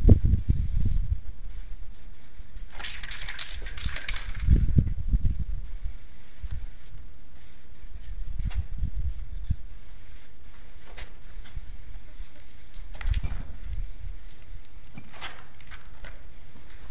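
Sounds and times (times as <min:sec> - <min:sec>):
aerosol spray can hissing: 0:09.7 - 0:15.0.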